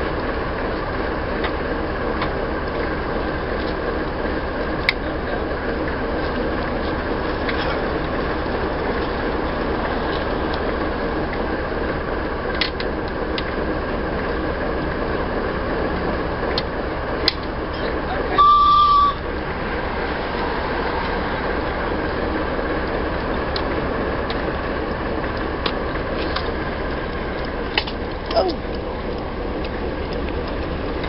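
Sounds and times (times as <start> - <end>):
steady steam hiss: 0.0 - 31.0
steam locomotive whistle: 18.2 - 19.4.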